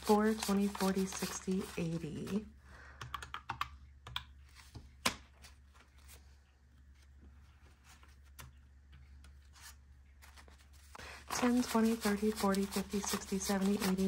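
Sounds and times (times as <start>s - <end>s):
calculator keys clicking: 3.0s - 4.2s.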